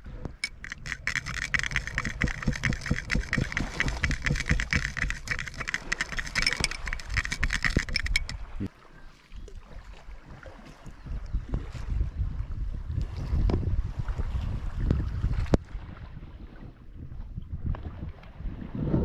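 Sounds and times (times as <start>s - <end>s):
knife scraping ceramic bowl: 0.4s - 8.4s
wind on microphone: 9.6s - 19.0s.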